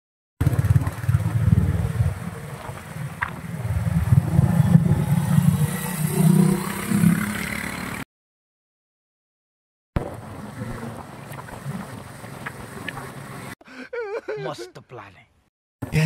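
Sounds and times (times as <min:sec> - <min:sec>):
motorcycle engine passing: 0:00.4 - 0:08.0.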